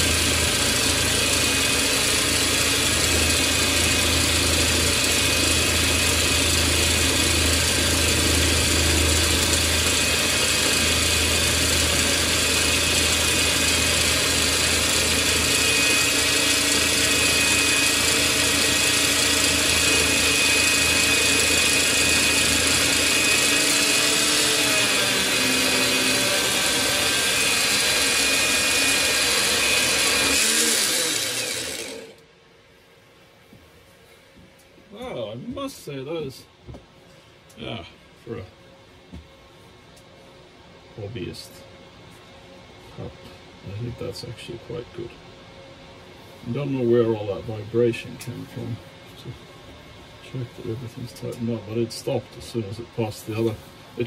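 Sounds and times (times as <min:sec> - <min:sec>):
band saw cutting steel bar: 0:00.0 - 0:32.2.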